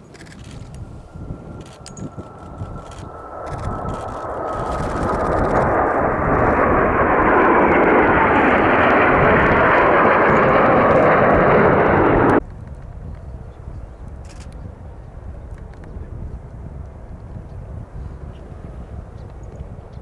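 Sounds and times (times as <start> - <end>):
jet engine passing: 0.0 - 12.4.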